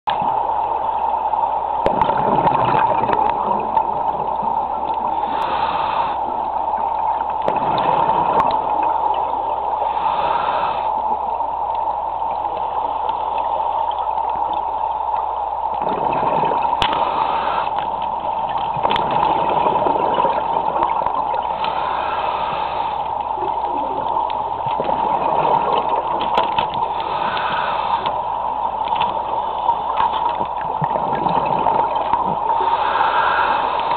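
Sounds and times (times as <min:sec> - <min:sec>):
steady hum: 0:00.1 - 0:33.9
water bubbling underwater: 0:00.1 - 0:33.9.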